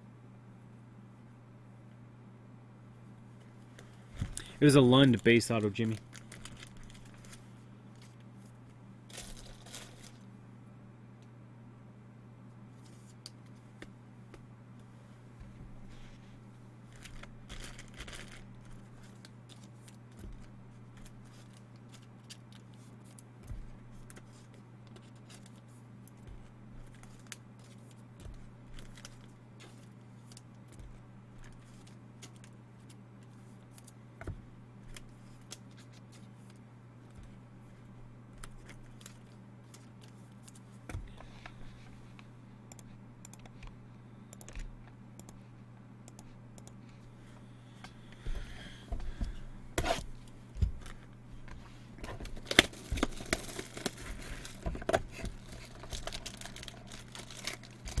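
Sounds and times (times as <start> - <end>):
steady low hum: 0.0 - 58.0
crinkly rustling: 5.0 - 10.3, 16.9 - 33.9, 34.8 - 40.8, 50.8 - 58.0.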